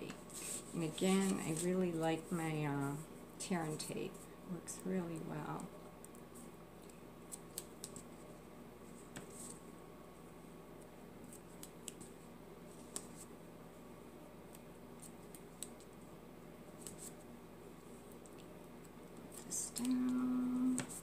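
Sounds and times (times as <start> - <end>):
paper rustling: 0.1 - 2.3.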